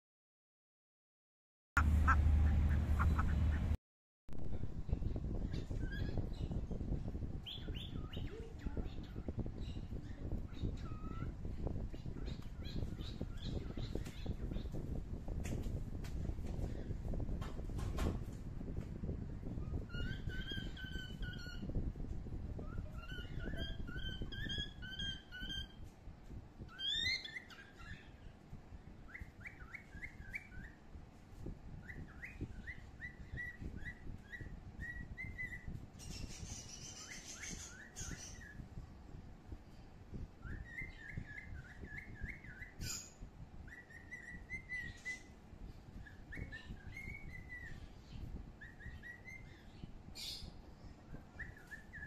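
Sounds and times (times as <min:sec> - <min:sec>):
low rumble: 0:01.8 - 0:03.8
high bird chirps: 0:07.4 - 0:14.9, 0:19.6 - 0:21.8, 0:26.6 - 0:28.3, 0:31.8 - 0:38.6, 0:40.4 - 0:45.4, 0:46.0 - 0:52.0.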